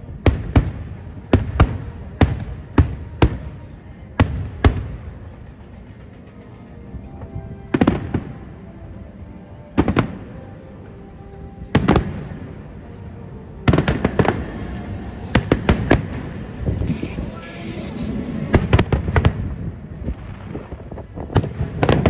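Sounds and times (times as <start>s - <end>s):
fireworks bangs: 0.0s - 3.6s, 4.2s - 6.5s, 11.7s - 12.5s, 13.6s - 22.0s
background music: 0.0s - 22.0s.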